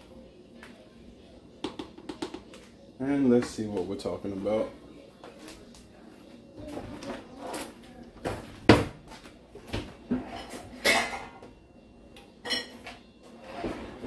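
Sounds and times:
cutlery and dishes clinking: 0:09.7 - 0:11.4, 0:12.2 - 0:14.0.

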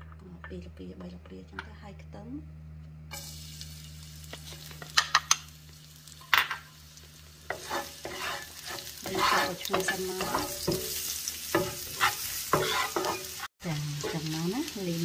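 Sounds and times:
garlic sizzling in oil: 0:03.1 - 0:15.0
wooden spatula scraping pan: 0:07.5 - 0:11.0, 0:11.6 - 0:14.3.

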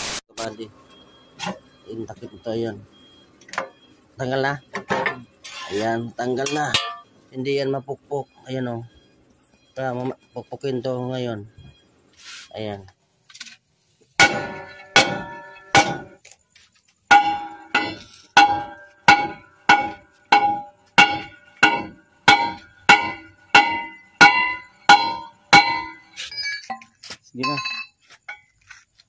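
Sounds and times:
hammer clanging on steel hub: 0:04.8 - 0:07.2, 0:14.2 - 0:16.2, 0:17.1 - 0:28.5.

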